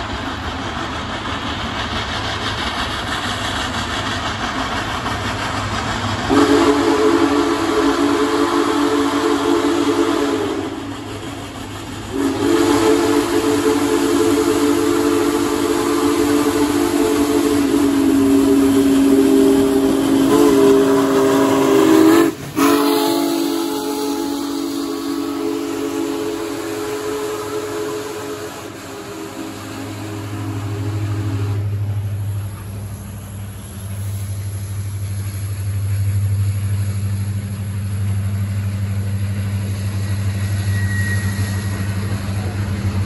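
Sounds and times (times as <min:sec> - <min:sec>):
steam locomotive running: 0:00.0 - 0:43.0
steam whistle chord: 0:06.3 - 0:10.8, 0:12.1 - 0:31.8, 0:39.6 - 0:42.6.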